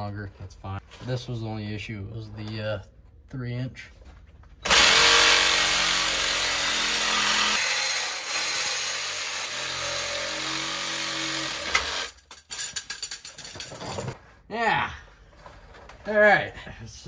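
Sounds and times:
reciprocating saw cutting metal: 4.6s - 12.2s.

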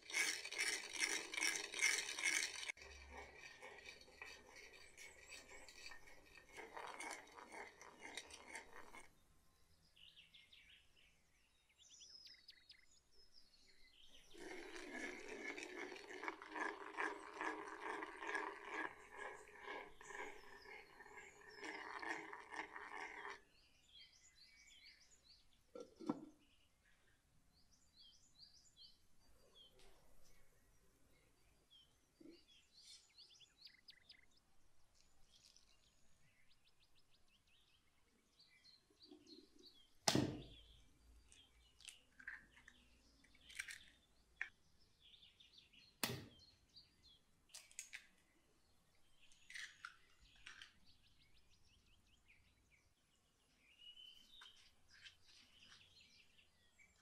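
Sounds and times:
spoon scraping clay bowl: 0.0s - 9.2s, 14.2s - 23.4s
stirring dry granules: 0.0s - 9.2s, 14.2s - 23.4s
birds chirping: 1.6s - 57.0s.

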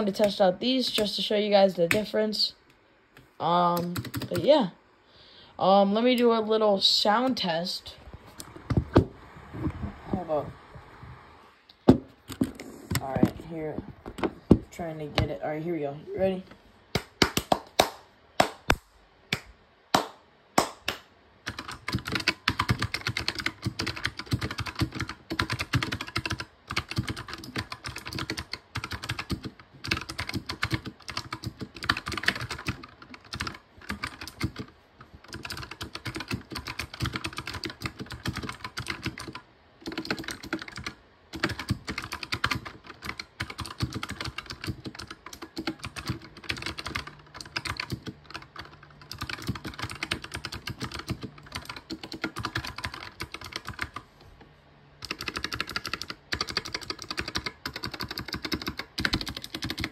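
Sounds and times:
mechanical keyboard typing: 3.5s - 4.7s, 21.4s - 54.0s, 55.0s - 59.9s.

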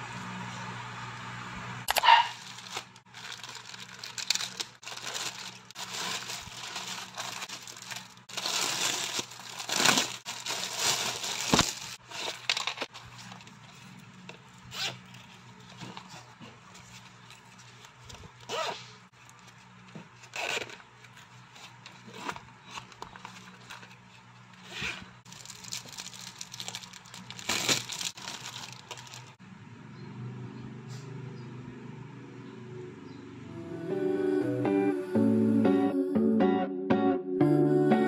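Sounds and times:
plastic packaging crinkling: 1.9s - 29.4s.

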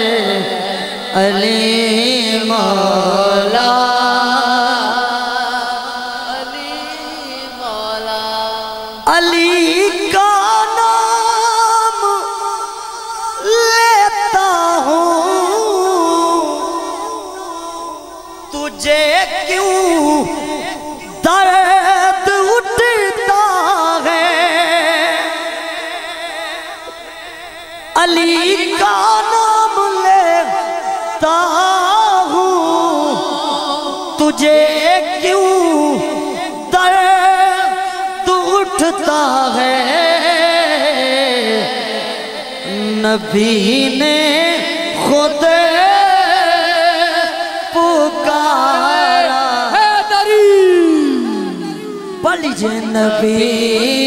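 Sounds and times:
man singing long notes: 0.0s - 54.0s.

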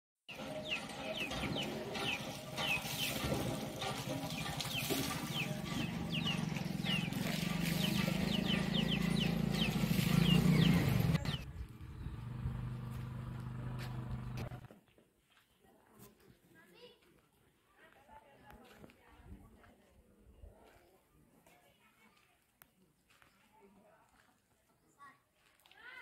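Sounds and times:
small birds chirping: 0.3s - 3.3s, 4.3s - 12.5s.

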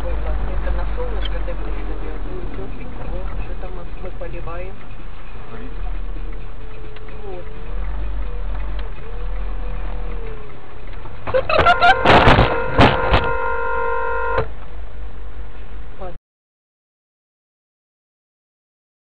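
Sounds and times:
road rumble inside car: 0.0s - 16.2s
car horn sounding: 11.3s - 14.6s
collision bangs and crunches: 11.6s - 13.4s.

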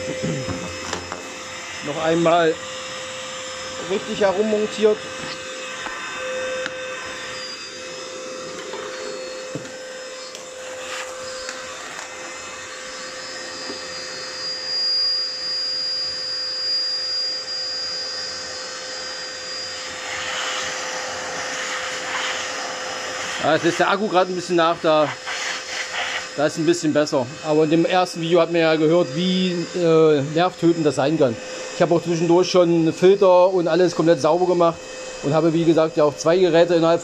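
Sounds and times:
vacuum cleaner whine: 0.0s - 37.0s
hose whistling: 19.4s - 26.6s.

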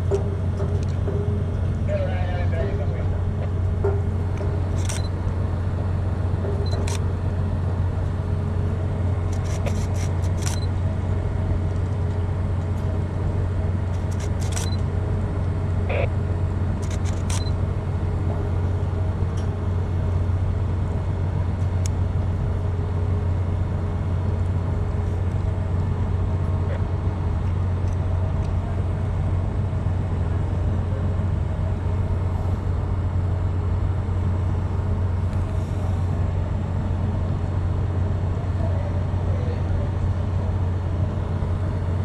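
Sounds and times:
faint clicks and metallic knocks: 0.0s - 1.8s
low hum of ship machinery: 0.0s - 42.0s.

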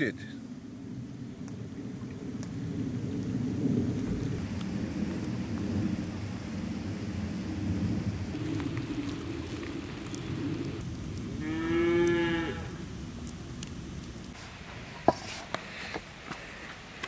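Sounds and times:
cow mooing: 11.4s - 12.8s.

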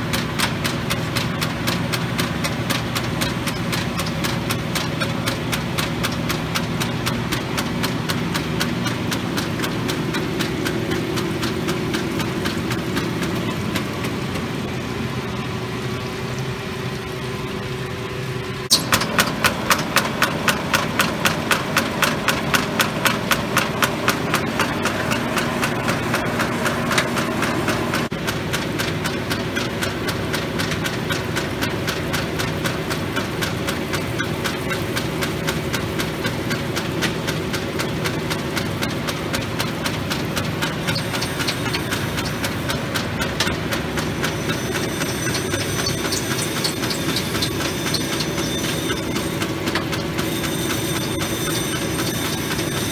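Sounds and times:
surface grinder running: 0.0s - 17.2s, 18.7s - 52.9s
sharp rhythmic pulse: 40.9s - 52.9s.

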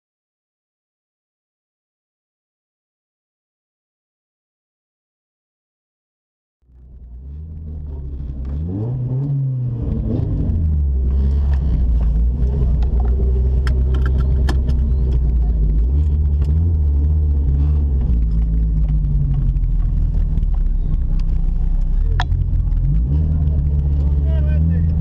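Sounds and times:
car engine idling: 6.6s - 25.0s.

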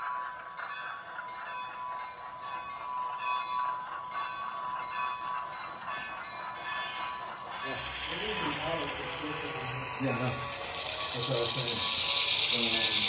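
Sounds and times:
diesel engine sound through small speaker: 7.5s - 13.0s.

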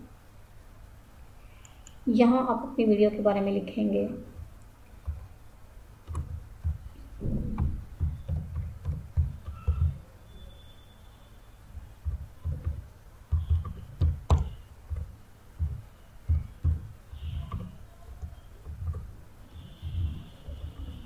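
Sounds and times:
typing on a laptop keyboard: 4.4s - 5.3s, 6.0s - 10.1s, 11.7s - 19.2s.

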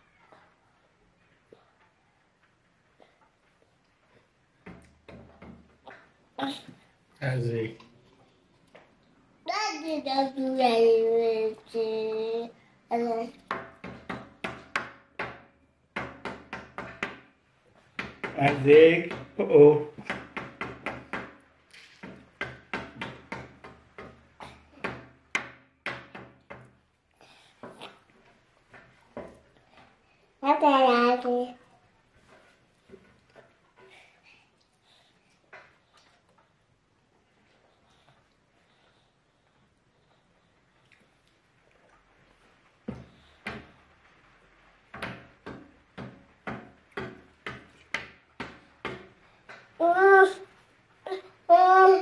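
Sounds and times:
rapid knocking on hard surface: 13.5s - 17.3s, 17.9s - 21.4s, 22.0s - 26.8s, 45.0s - 49.2s.

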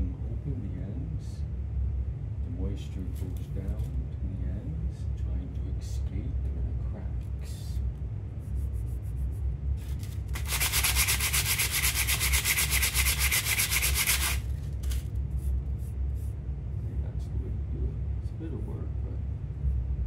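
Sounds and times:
steady low rumble: 0.0s - 20.0s
wire wheel rasping on wood: 10.4s - 14.4s.

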